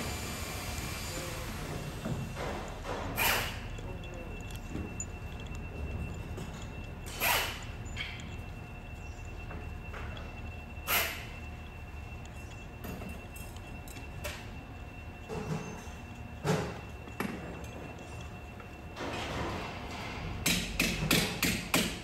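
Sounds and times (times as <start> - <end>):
steady low hum: 0.0 - 22.0
faint metal clinks: 2.4 - 20.0.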